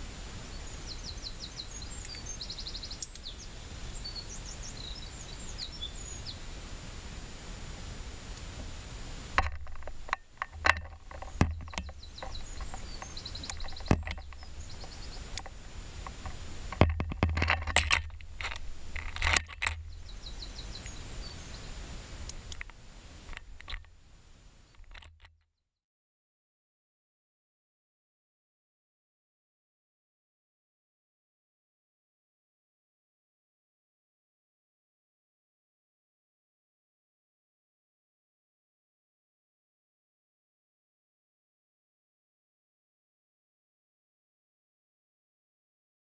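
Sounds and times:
songbirds chirping: 0.0 - 25.3
bird tapping on camera: 9.4 - 21.0.

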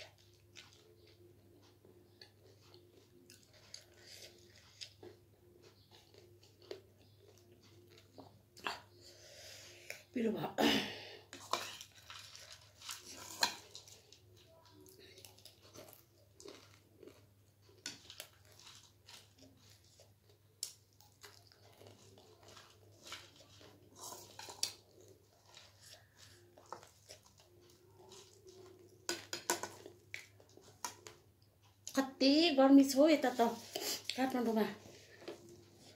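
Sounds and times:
person chewing crunchy snack: 2.2 - 9.0, 11.3 - 31.8.

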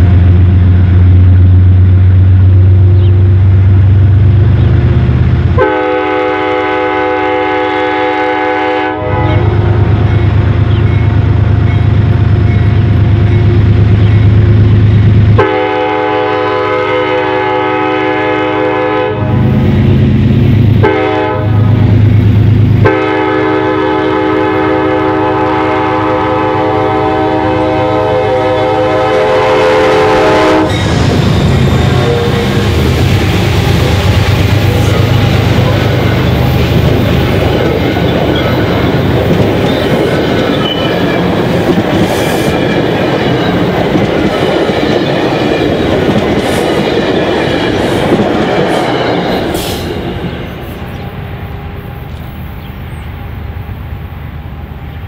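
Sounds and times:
train rushing past: 0.0 - 55.0
locomotive horn blasts: 5.6 - 11.0, 15.3 - 19.4, 20.8 - 22.0, 22.8 - 41.4
diesel engine rumble: 30.7 - 42.1.

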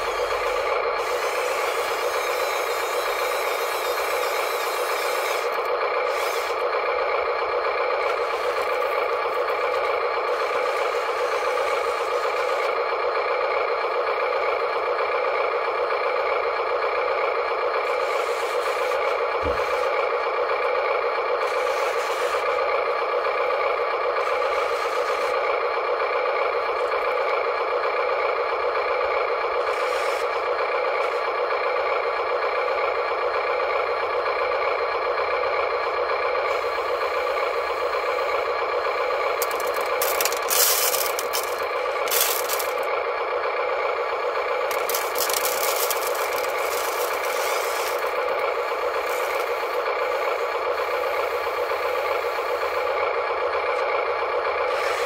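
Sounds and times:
small electric motors whirring: 0.0 - 6.7, 8.0 - 12.8, 17.8 - 20.0, 21.4 - 22.6, 24.2 - 25.4, 29.6 - 30.4, 39.1 - 42.9, 44.6 - 52.6, 54.6 - 55.0.

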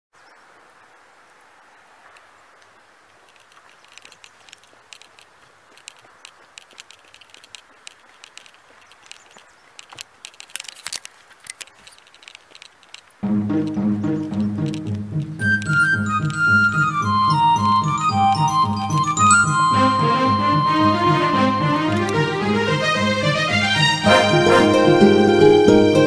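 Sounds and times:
soft steady hiss: 0.2 - 13.8
short crackling clicks: 3.2 - 16.4.

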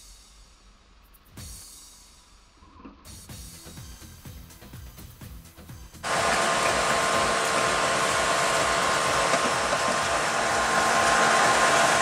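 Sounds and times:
fuel pump whirring hum: 6.0 - 12.0.

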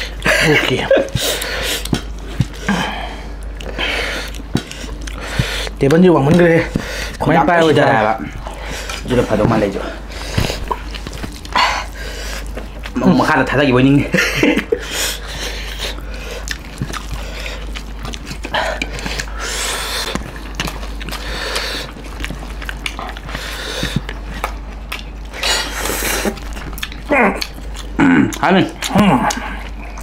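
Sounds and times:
wet chewing and lip smacks: 1.1 - 2.7, 3.4 - 13.0, 15.1 - 30.0
noisy breaths or sniffs: 1.1 - 5.8, 18.5 - 20.2, 21.2 - 22.0.

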